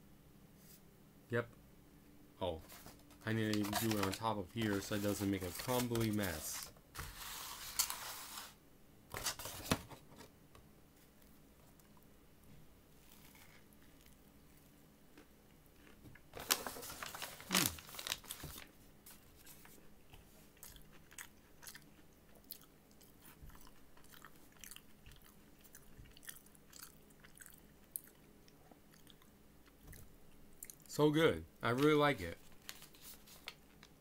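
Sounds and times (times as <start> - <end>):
person chewing crunchy fried chicken: 20.1 - 30.0.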